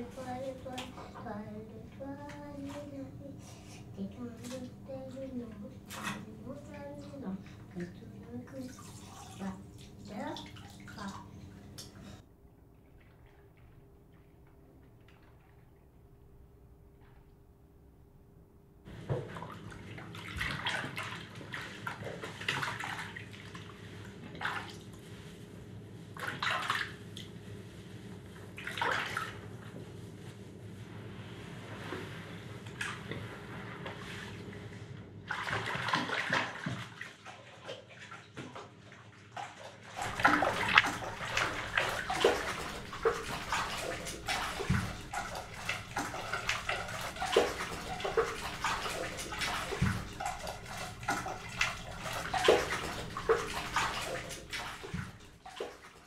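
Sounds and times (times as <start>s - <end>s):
tap water running into bathtub: 0.0s - 12.2s, 19.0s - 25.0s, 35.3s - 56.0s.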